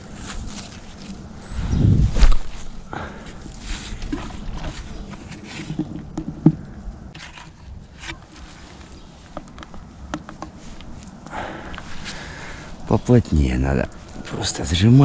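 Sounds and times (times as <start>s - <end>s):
footsteps in dry leaves: 0.0s - 2.8s.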